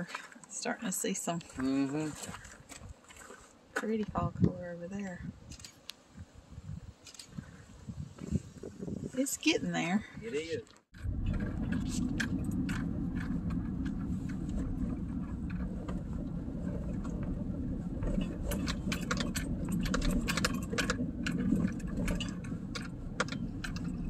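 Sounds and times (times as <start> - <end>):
tyre and engine rumble: 9.2 - 24.0
vehicle rattles and clicks: 10.8 - 24.0.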